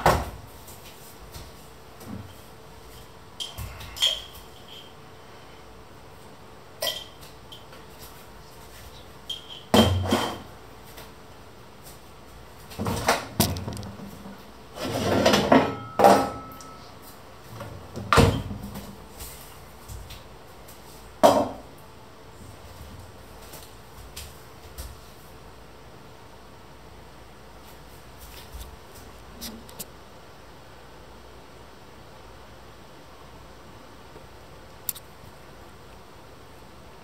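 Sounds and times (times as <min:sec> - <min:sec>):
dishes and utensils clinking: 0:15.2 - 0:16.8.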